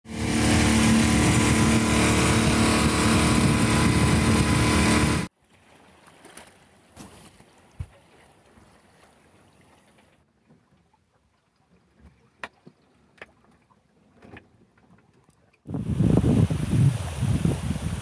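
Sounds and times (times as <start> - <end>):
water noise: 0.0 - 18.0
wind: 0.0 - 18.0
boat engine running: 0.1 - 5.3.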